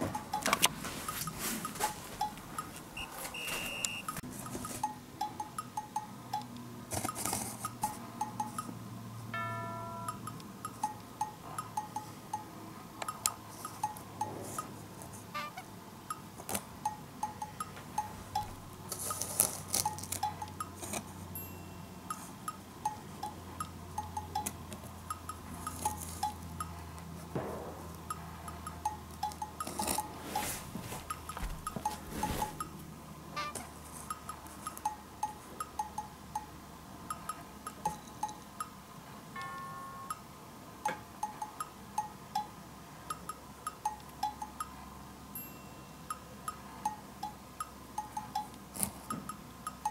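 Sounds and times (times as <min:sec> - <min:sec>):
bouncy chime-like music: 0:09.3 - 0:13.2, 0:16.8 - 0:18.6, 0:21.4 - 0:24.5, 0:39.4 - 0:40.4, 0:45.4 - 0:47.4.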